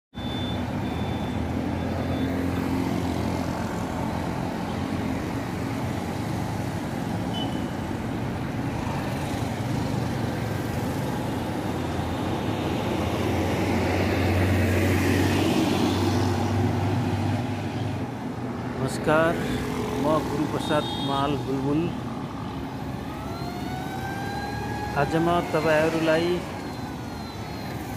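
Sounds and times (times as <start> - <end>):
road traffic rumble: 0.1 - 27.9.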